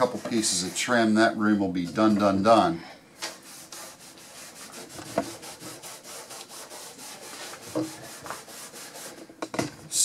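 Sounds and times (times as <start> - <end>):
rag rubbing over wood: 0.0 - 1.4, 3.4 - 9.2.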